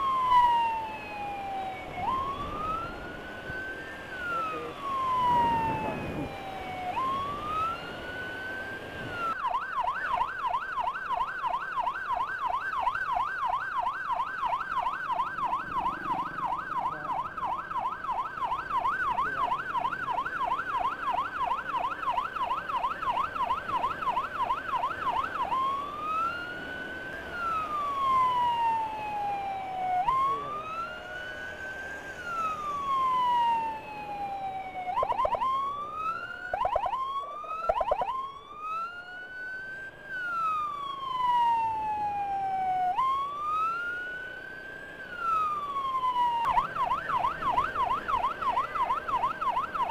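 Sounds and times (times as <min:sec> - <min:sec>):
electronic siren yelp and wail: 0:00.0 - 0:49.9
road and engine noise: 0:00.0 - 0:49.9
short siren whoops: 0:03.8 - 0:08.1.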